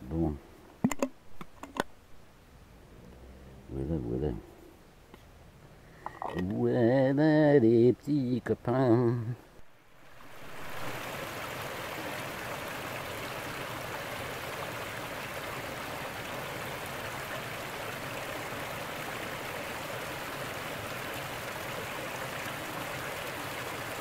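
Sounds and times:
stream splashing over rocks: 0:09.9 - 0:24.0.

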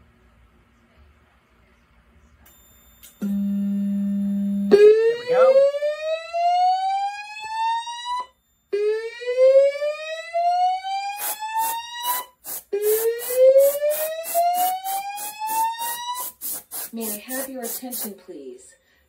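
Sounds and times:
slow whoop alarm tone: 0:04.7 - 0:16.4
aerosol can spraying spurts: 0:11.2 - 0:18.2.

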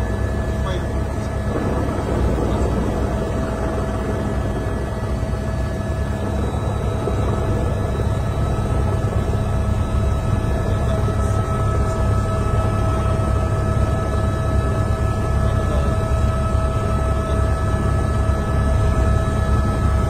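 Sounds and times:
faint constant whine: 0:00.0 - 0:20.0
helicopter turbine and rotor drone: 0:00.0 - 0:20.0.

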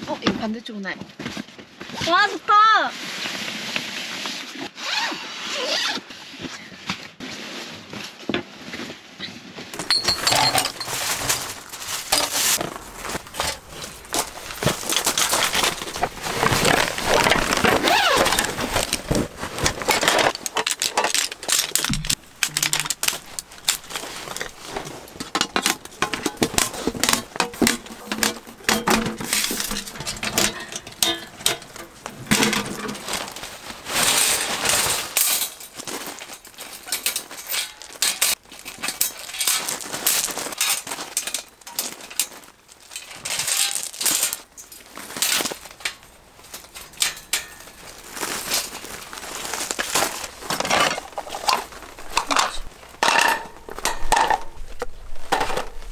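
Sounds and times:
camping gear clicks and rattles: 0:09.7 - 0:55.9.

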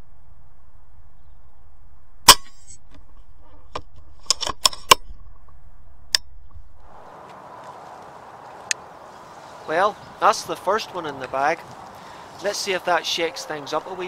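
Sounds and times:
small sharp clicks and knocks: 0:03.6 - 0:05.1.

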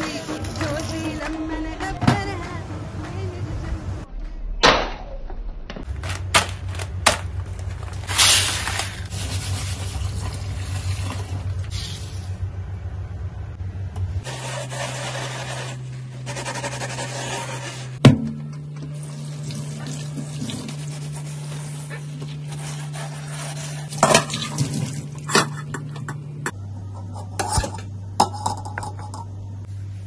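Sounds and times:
steady low tone: 0:01.6 - 0:05.9, 0:09.1 - 0:14.3, 0:25.6 - 0:30.0
water pouring and splashing: 0:08.1 - 0:12.1, 0:19.0 - 0:21.7, 0:23.8 - 0:25.3.

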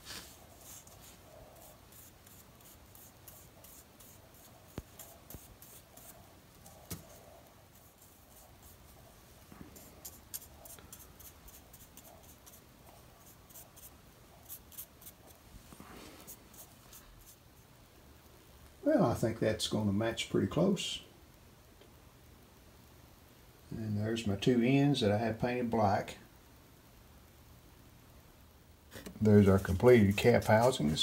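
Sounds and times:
paintbrush scratching: 0:00.0 - 0:15.4, 0:16.2 - 0:17.7, 0:28.9 - 0:31.0.

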